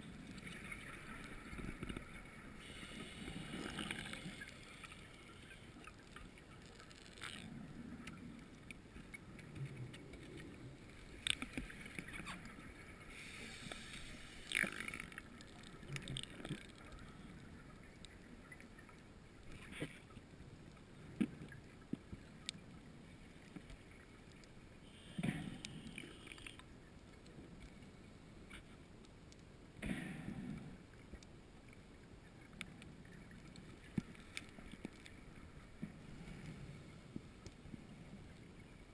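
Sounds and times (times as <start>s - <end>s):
faint clicks: 0.1s - 38.9s
underwater hiss: 2.5s - 5.7s, 13.0s - 15.0s.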